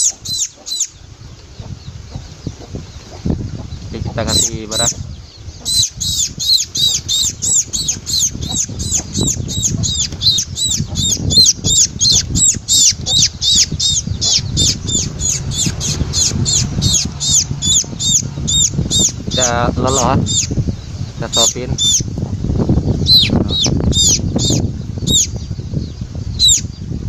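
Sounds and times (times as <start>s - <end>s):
sparrow chick chirping: 0.0s - 27.0s.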